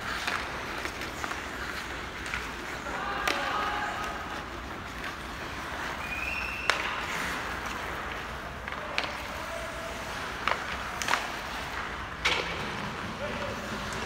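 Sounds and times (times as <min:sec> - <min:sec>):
sticks and puck knocking: 0:10.4 - 0:12.7.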